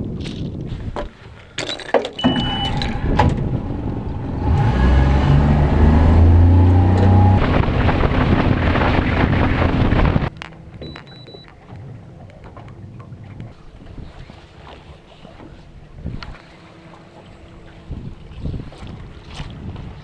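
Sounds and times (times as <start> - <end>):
short high beep: 2.2 - 3.0, 10.8 - 11.5
outboard motor running: 2.2 - 20.0.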